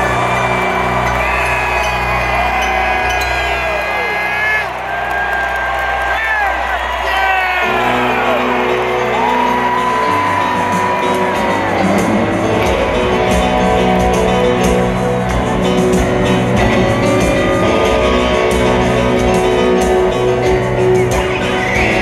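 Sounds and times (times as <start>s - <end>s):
electric guitar long notes: 7.6s - 22.0s
live rock band playing ballad: 7.6s - 22.0s.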